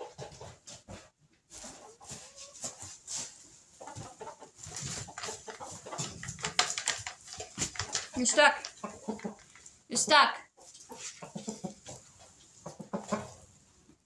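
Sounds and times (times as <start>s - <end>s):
chickens clucking: 0.0s - 14.0s
rustling in straw: 1.5s - 6.1s.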